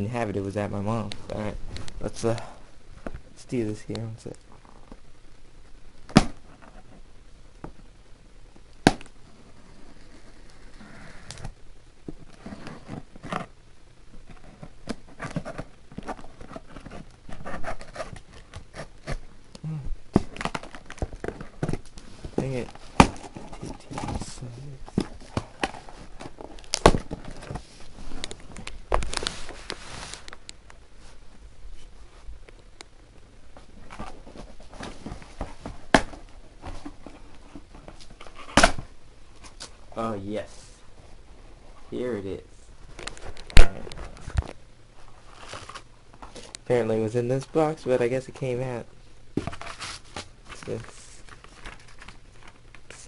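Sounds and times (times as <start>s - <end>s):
tape and cardboard rustling: 8.9s - 13.5s, 14.2s - 19.2s, 20.1s - 32.2s, 33.5s - 39.8s, 42.9s - 46.7s, 49.4s - 53.0s.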